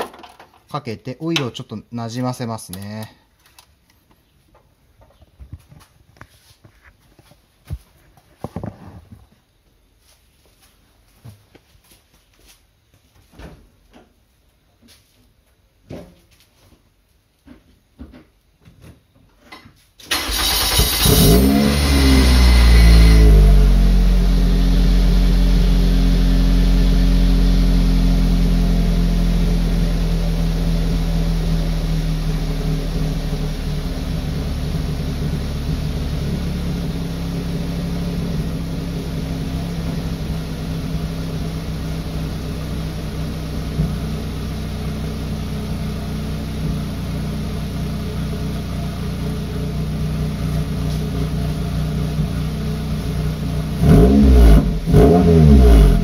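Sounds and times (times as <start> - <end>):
car engine starting and idling: 20.0 - 56.0.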